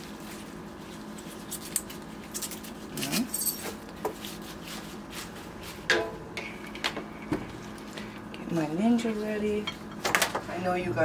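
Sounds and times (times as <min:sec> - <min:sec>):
kale leaves tearing: 0:00.0 - 0:03.2
faint steady hum: 0:00.0 - 0:11.0.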